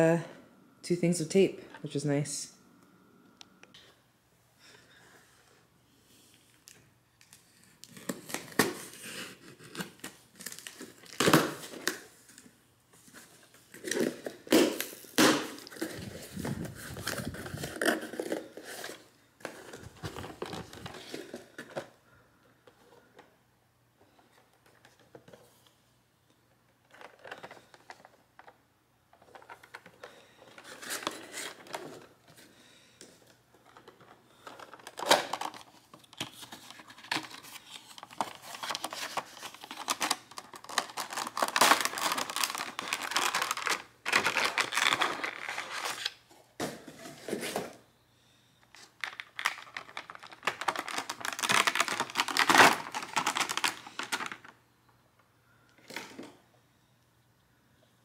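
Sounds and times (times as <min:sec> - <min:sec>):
plastic and cardboard crinkling: 0:06.5 - 0:23.2, 0:26.8 - 0:47.8, 0:48.7 - 0:54.6.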